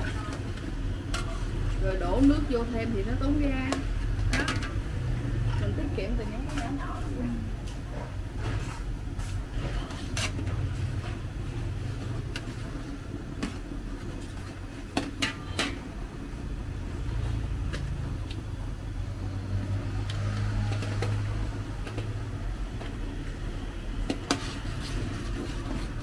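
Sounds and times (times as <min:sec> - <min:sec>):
metal spatulas scraping a wok: 0:00.0 - 0:02.5, 0:08.0 - 0:15.9, 0:24.0 - 0:26.0.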